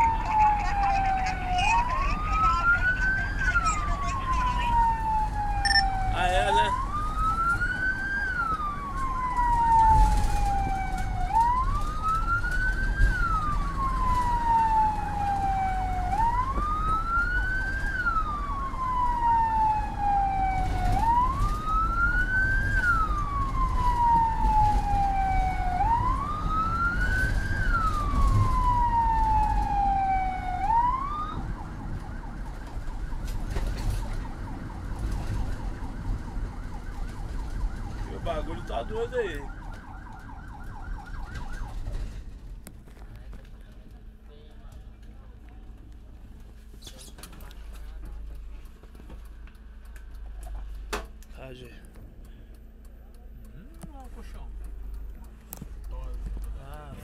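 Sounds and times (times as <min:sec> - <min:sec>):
ambulance siren wailing: 0:00.0 - 0:42.3
vehicle rumble from inside: 0:00.0 - 0:57.0.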